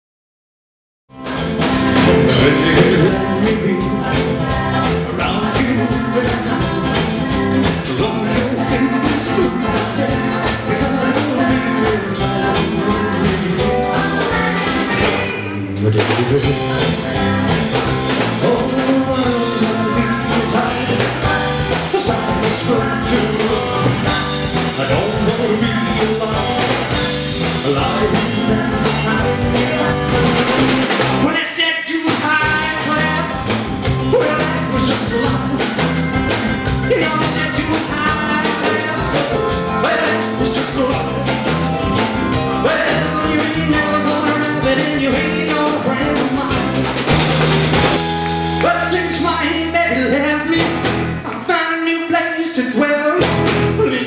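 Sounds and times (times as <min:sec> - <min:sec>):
drum kit beat: 0:01.1 - 0:31.4, 0:32.1 - 0:51.5, 0:53.2 - 0:54.0
rock and roll band music: 0:01.1 - 0:54.0
person singing: 0:01.2 - 0:36.0, 0:36.7 - 0:47.2, 0:47.8 - 0:54.0.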